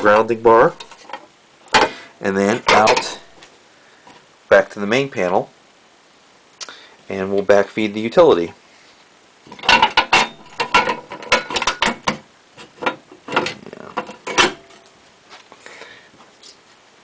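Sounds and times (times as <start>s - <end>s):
metal enclosure clicking and knocking: 0.0s - 3.4s, 9.5s - 14.8s.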